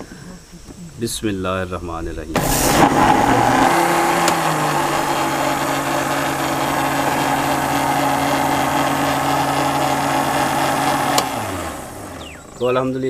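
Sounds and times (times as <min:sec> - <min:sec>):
blender motor humming: 0:02.4 - 0:12.6.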